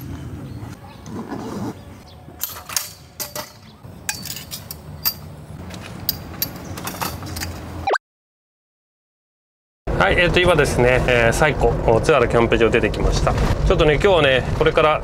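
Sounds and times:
metal poles clinking: 2.4 - 7.8.

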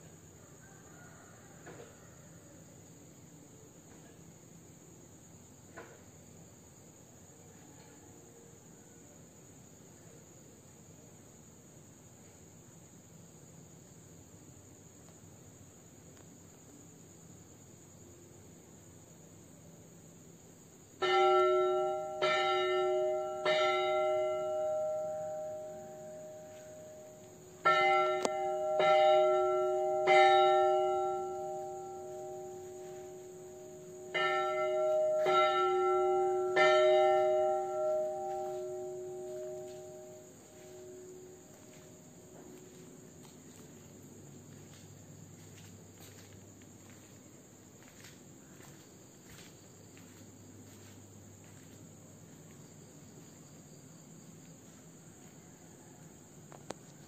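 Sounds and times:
crickets trilling: 0.0 - 57.0
large bell tolling: 27.6 - 41.1.

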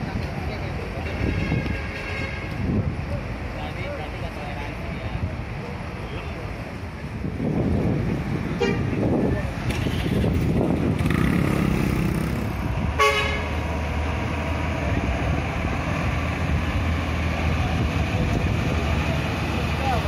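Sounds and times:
bus engines running: 0.0 - 20.0
bus horn: 1.1 - 2.6, 8.6 - 9.0, 13.0 - 13.6.

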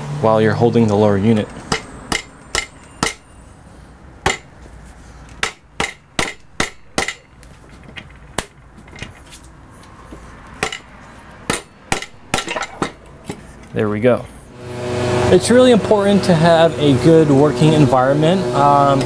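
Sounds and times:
palm slapping metal: 4.3 - 4.5, 11.5 - 13.4.

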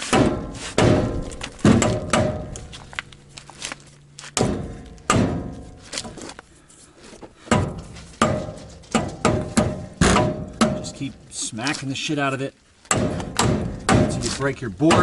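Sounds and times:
wood hammering steel spindle: 7.5 - 11.1, 12.9 - 15.0.

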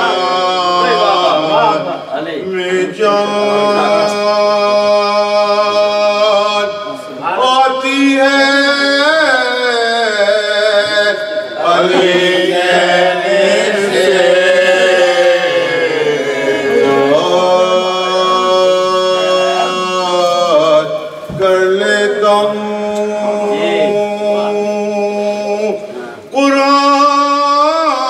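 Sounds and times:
person chanting a lament: 0.0 - 28.0.

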